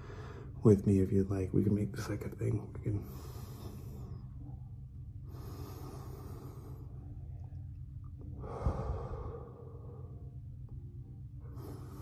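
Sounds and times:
deep breaths close to microphone: 0:00.0 - 0:00.6, 0:02.9 - 0:07.3, 0:08.2 - 0:10.5, 0:11.2 - 0:12.0
steady low hum: 0:00.0 - 0:12.0.

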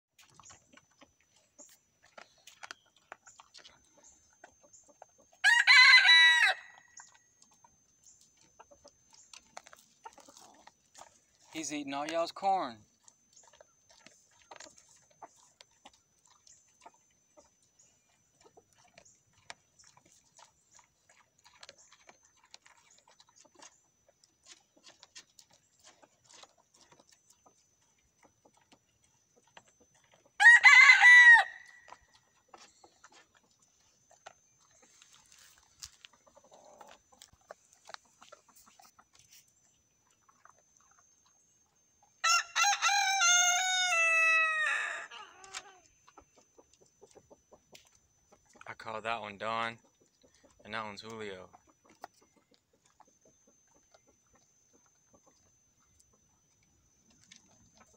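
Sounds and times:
rooster crowing: 0:05.4 - 0:06.9, 0:30.4 - 0:31.9, 0:42.2 - 0:45.6.

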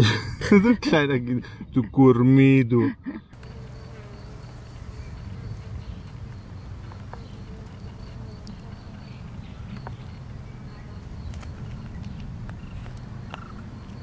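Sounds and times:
insects buzzing: 0:03.3 - 0:14.0.

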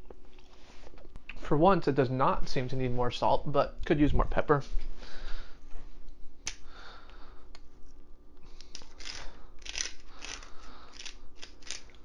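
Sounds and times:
pepper mill grinding: 0:08.6 - 0:12.0.

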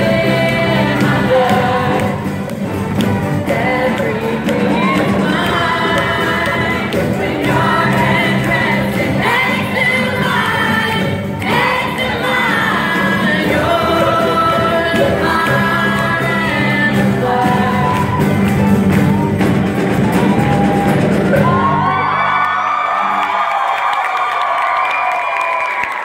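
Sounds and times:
group of people singing: 0:00.0 - 0:19.2
live band playing pop-rock: 0:00.0 - 0:22.2
crowd cheering: 0:17.8 - 0:26.0
whoops and shouts: 0:20.0 - 0:26.0.

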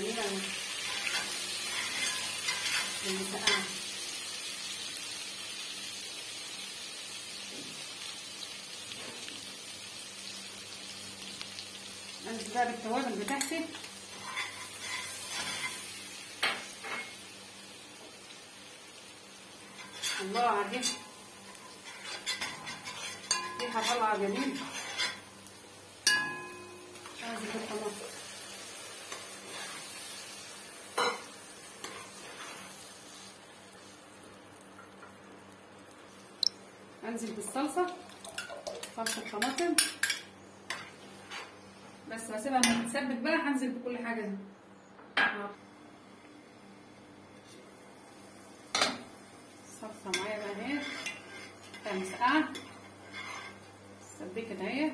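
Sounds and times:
garlic sizzling in hot fat: 0:00.0 - 0:42.8, 0:46.0 - 0:54.9
spoon stirring pot: 0:21.8 - 0:25.2.

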